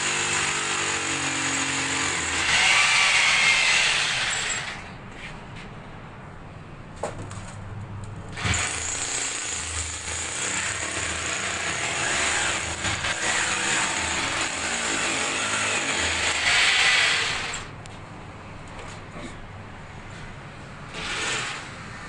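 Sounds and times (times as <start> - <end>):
hammer drill boring into tile: 8.4 - 17.7.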